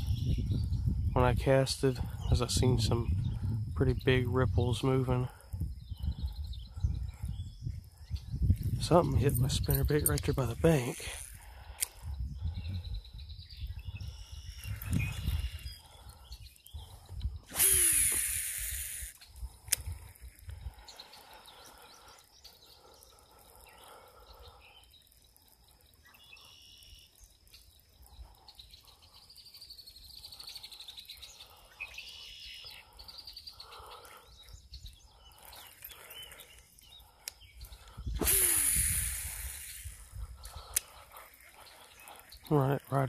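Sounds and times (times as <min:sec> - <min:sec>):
faint bird chirps: 0:00.0 - 0:01.2, 0:05.2 - 0:08.8, 0:09.5 - 0:43.0
fishing reel line whirring: 0:09.6 - 0:13.0, 0:14.1 - 0:42.9.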